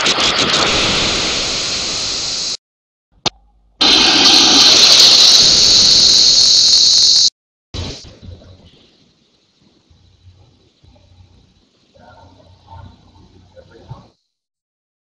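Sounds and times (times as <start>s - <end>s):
harsh distorted static hiss: 3.8s - 14.2s.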